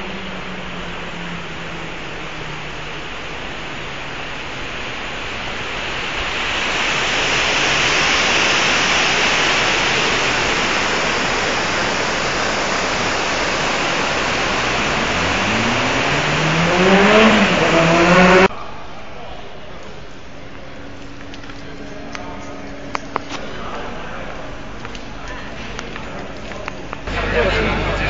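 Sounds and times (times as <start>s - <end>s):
vehicle engine revving: 11.6s - 18.5s.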